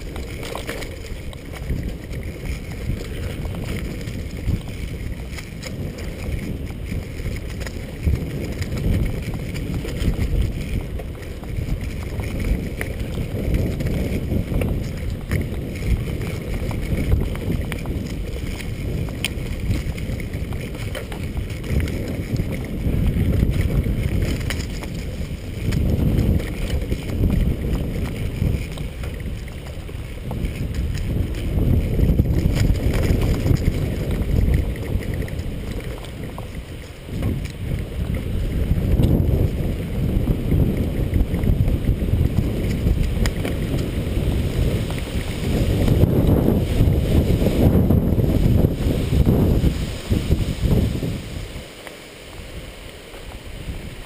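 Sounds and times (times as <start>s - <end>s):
bike knocks and rattles: 0.0s - 49.3s
bicycle tyres rumbling on dirt: 0.0s - 54.0s
wind buffeting microphone: 0.0s - 54.0s.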